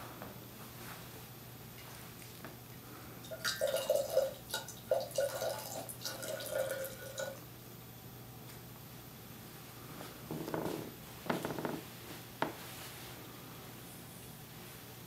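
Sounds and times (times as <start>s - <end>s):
water pouring into kettle: 3.2s - 7.4s.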